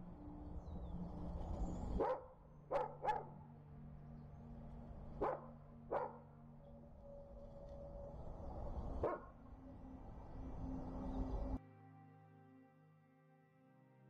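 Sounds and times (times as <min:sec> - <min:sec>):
dog barking: 0:02.0 - 0:03.3, 0:05.2 - 0:06.2, 0:09.0 - 0:09.3.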